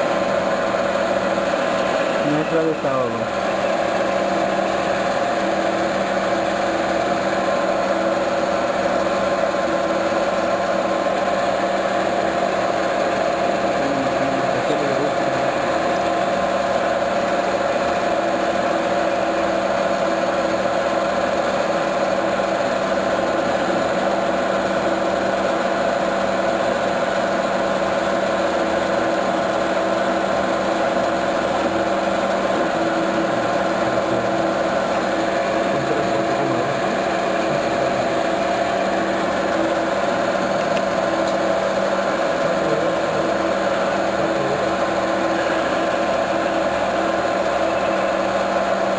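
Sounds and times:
metal lathe cutting: 0.0s - 48.9s.

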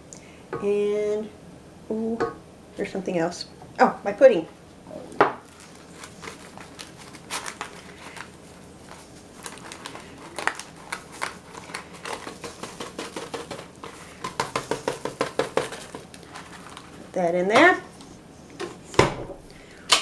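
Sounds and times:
packet rustling and crinkling: 5.4s - 17.2s.

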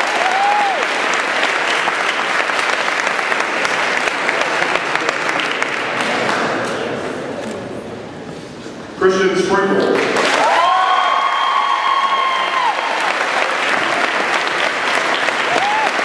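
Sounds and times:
audience applauding: 0.0s - 6.6s, 10.0s - 16.0s.

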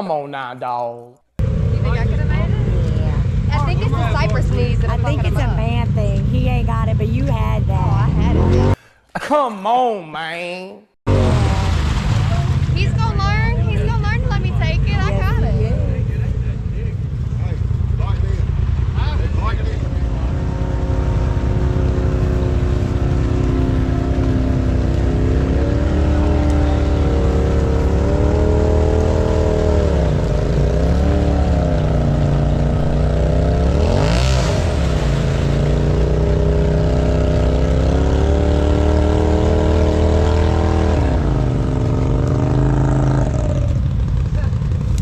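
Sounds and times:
utv engine revving under load: 1.4s - 8.8s, 17.0s - 45.0s.

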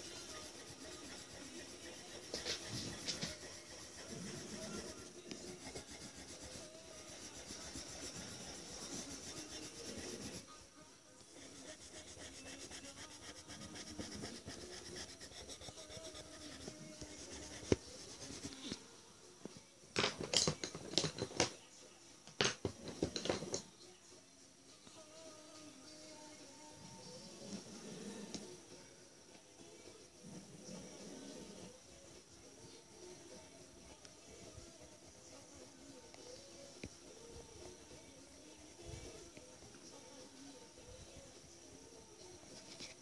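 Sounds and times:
pencil scratching on paper: 0.0s - 10.5s, 11.3s - 18.8s.

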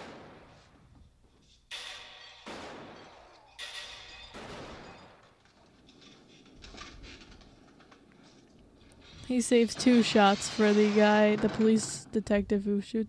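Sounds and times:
handgun shots: 1.7s - 5.3s.

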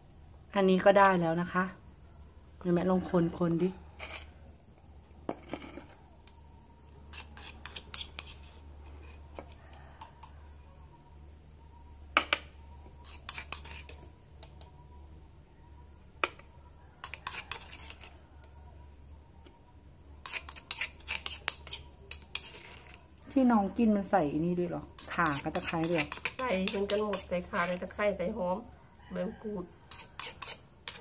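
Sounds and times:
metal spoon scraping and clinking: 4.0s - 4.3s, 7.0s - 10.3s, 13.0s - 14.6s, 17.0s - 18.1s, 20.2s - 23.0s, 25.0s - 27.8s, 29.9s - 31.0s.

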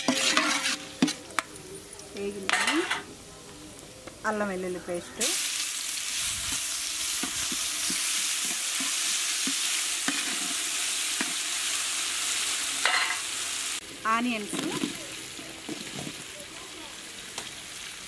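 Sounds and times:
metal spatula scraping a pot: 0.0s - 1.2s, 6.5s - 11.4s
paste frying with a sizzle: 0.0s - 18.0s.

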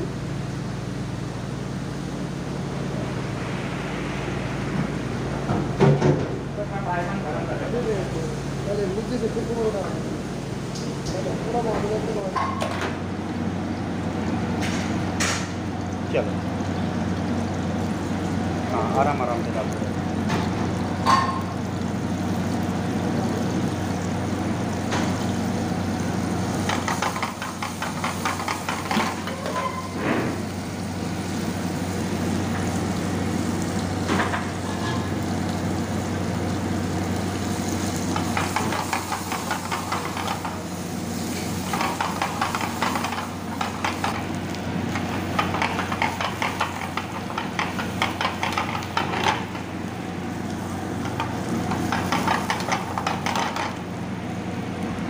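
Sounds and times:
steady low hum: 0.0s - 12.3s
food sizzling in hot oil: 12.0s - 55.0s
ladle stirring a pan: 26.5s - 30.0s, 37.5s - 53.9s.

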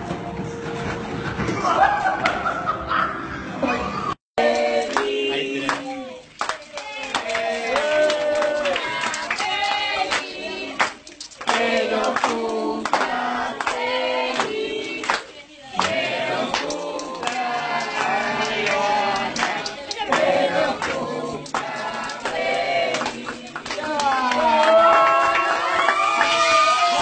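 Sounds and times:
group singing: 4.4s - 24.9s
hand clapping: 4.5s - 26.3s.

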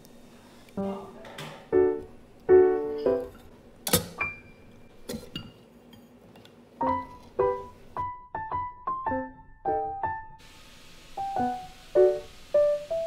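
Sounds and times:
piano music: 0.8s - 5.4s, 6.8s - 10.5s, 11.1s - 13.0s.

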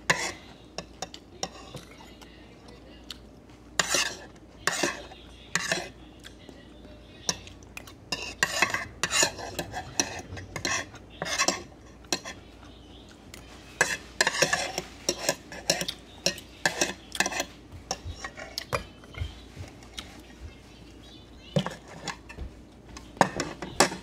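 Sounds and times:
cutlery clinking on plate: 8.1s - 12.4s, 13.8s - 19.3s, 23.2s - 24.0s.

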